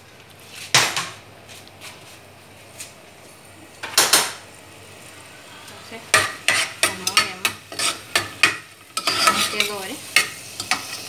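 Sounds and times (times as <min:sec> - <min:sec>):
food sizzling in oil: 0:03.6 - 0:11.0
metal spoon scraping metal pot: 0:06.5 - 0:08.2, 0:09.0 - 0:11.0.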